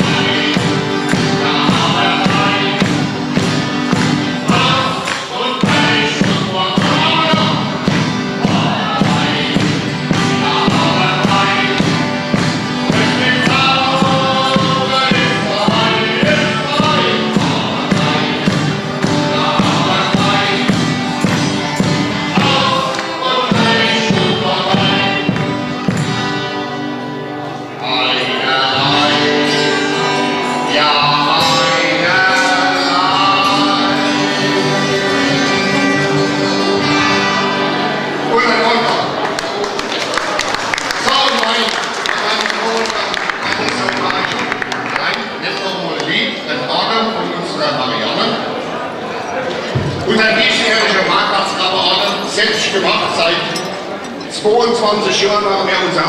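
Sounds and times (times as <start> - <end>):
audience clapping along: 0.0 - 26.3, 38.5 - 46.4
voices singing with band: 0.0 - 40.7.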